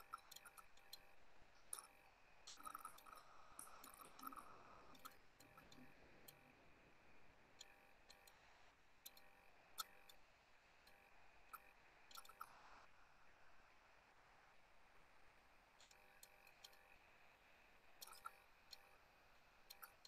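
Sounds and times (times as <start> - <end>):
faint scattered clicks: 0.0 - 6.5, 7.5 - 12.9, 15.8 - 17.0, 17.8 - 20.0.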